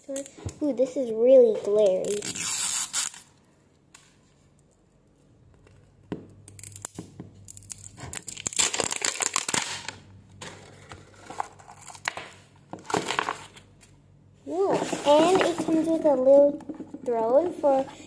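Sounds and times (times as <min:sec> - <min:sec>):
plastic wrapper tearing and crinkling: 0:02.0 - 0:03.3, 0:06.5 - 0:10.0, 0:11.2 - 0:12.3.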